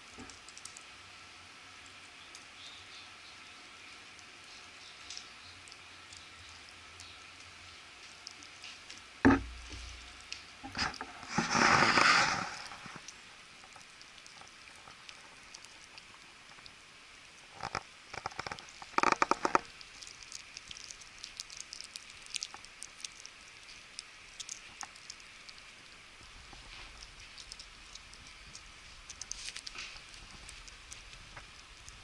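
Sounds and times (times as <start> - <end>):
thump: 9.2 - 9.6
rustling scuffle: 10.8 - 13.0
puppy teeth gnawing bone: 17.6 - 32.0.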